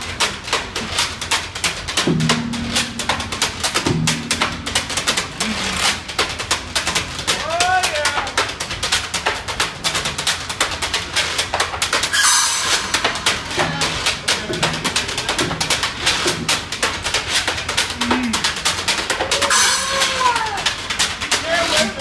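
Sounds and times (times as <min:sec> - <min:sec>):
drums keeping a busy beat: 0:00.0 - 0:22.0
plucked bass notes: 0:02.0 - 0:07.1, 0:12.8 - 0:16.7.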